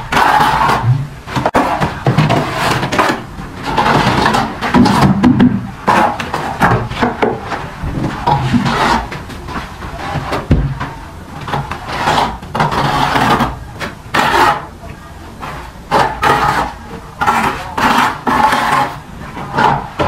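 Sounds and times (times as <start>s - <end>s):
trowel scraping mortar: 0.0s - 5.2s, 5.8s - 7.1s, 8.2s - 9.2s, 11.5s - 14.7s, 15.4s - 20.0s.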